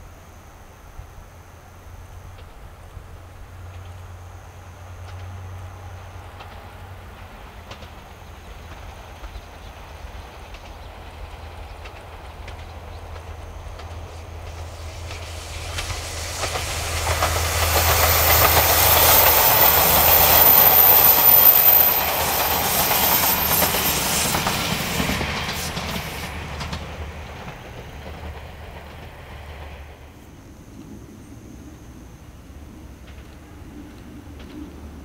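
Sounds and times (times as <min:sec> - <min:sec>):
diesel train passing: 0:00.1 - 0:35.0
wheels clicking over rail joints: 0:05.0 - 0:29.8.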